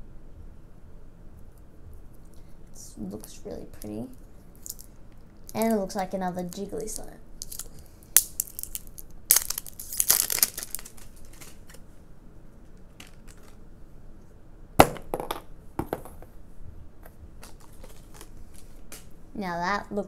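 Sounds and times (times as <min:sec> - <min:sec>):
plastic film crinkling: 0:06.9 - 0:11.8, 0:17.4 - 0:19.0.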